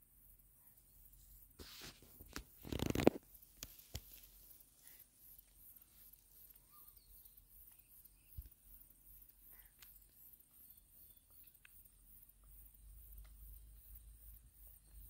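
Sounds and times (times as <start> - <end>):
fishing rod handling rustle: 1.6 - 4.5.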